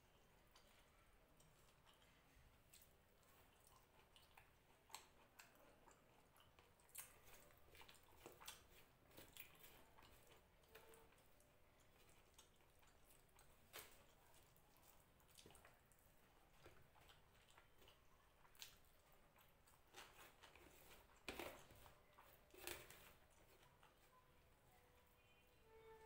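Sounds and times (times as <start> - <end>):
chewing: 0.0 - 25.4
wet squishing of food mixed by hand: 0.0 - 25.5.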